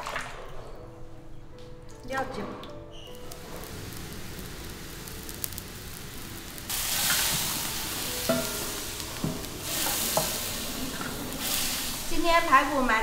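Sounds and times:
water boiling and bubbling: 3.2s - 13.0s
spatula knocking against wok: 8.2s - 9.5s
metal spatula stirring: 8.2s - 11.3s.

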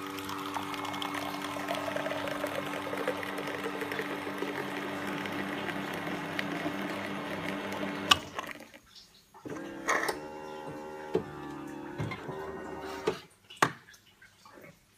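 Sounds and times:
coffee machine pump humming: 0.0s - 8.8s, 9.5s - 13.2s
coffee streaming into cup: 0.0s - 8.9s.

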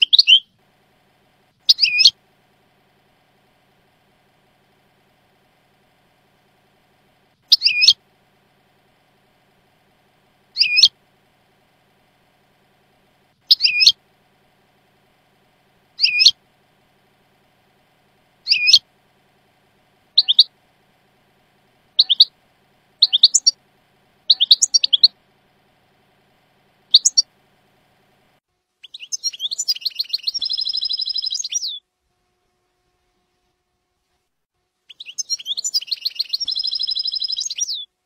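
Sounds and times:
goldfinch chirping: 0.0s - 0.5s, 1.6s - 2.2s, 7.5s - 8.0s, 10.5s - 10.9s, 13.4s - 14.0s, 16.0s - 16.4s, 18.4s - 18.8s, 20.2s - 20.5s, 22.0s - 22.3s, 23.0s - 23.6s, 24.3s - 25.2s, 26.9s - 27.2s, 28.8s - 31.8s, 34.9s - 37.9s
rapid buzzy bird trill: 0.0s - 31.9s, 34.8s - 38.0s.

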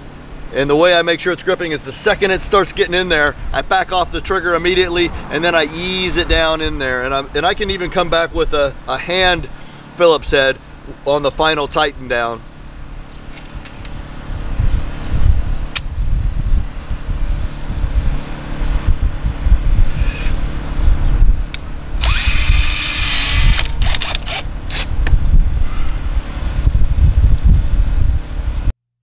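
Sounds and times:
cordless drill driving screws: 22.0s - 24.9s.

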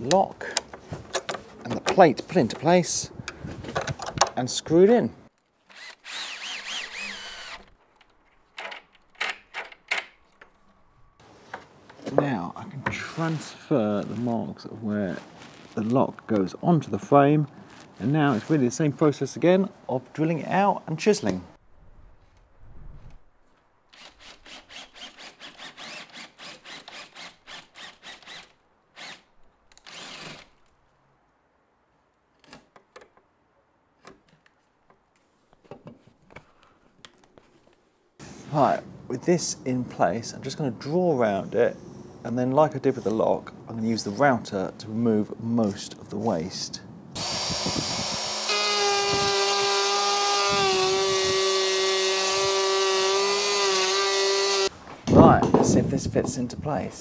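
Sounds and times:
electric router cutting wood: 47.2s - 54.7s.

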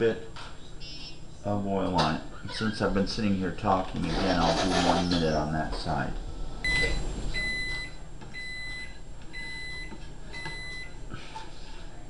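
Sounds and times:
kitchen timer beeping: 6.7s - 11.0s.

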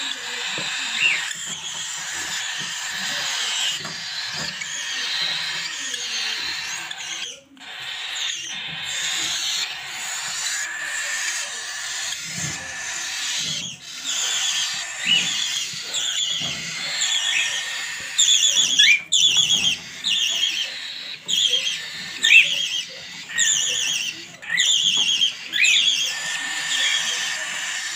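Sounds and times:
budgerigars chirping: 0.0s - 27.9s.

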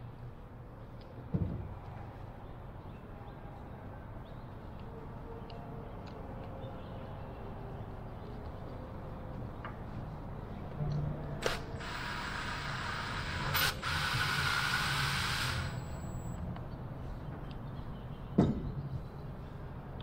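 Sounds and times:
low hum: 11.8s - 16.4s.

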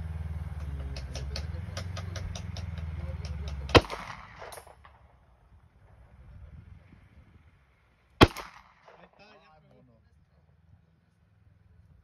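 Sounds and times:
low hum: 0.0s - 12.0s
pistol shot with echo: 3.5s - 5.2s, 8.2s - 9.2s.

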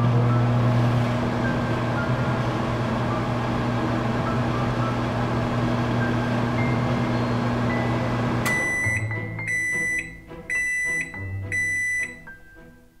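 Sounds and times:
microwave oven humming: 0.0s - 12.2s
high beeps: 8.5s - 12.3s.

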